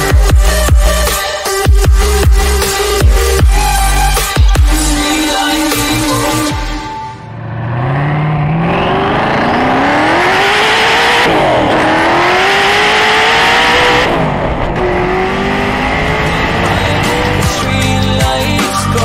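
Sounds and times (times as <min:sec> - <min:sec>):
car engine accelerating hard: 0:07.3 - 0:18.2.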